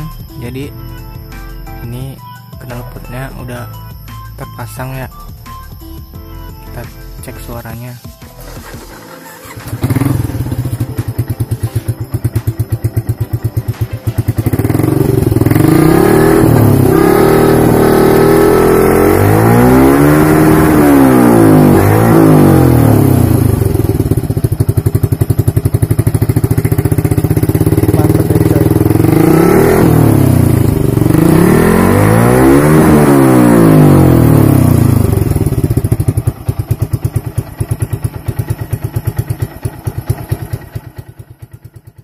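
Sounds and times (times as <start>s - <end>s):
motorcycle engine idling: 8.3s - 42.0s
motorcycle engine revving: 8.4s - 42.0s.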